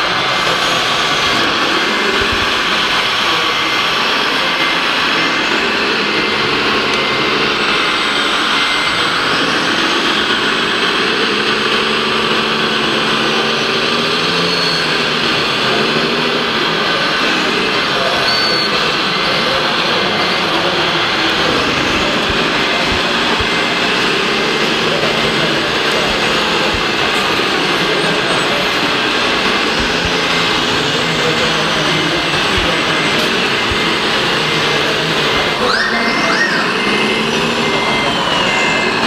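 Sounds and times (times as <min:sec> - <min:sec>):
model truck motor whining: 0:00.0 - 0:39.0.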